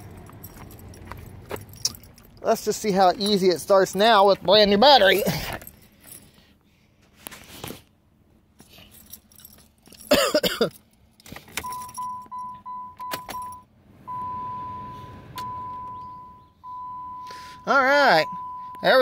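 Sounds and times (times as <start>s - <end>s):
car keys jangling: 0.0s - 6.6s, 8.4s - 13.6s
dashboard warning chime beeping: 11.6s - 19.0s.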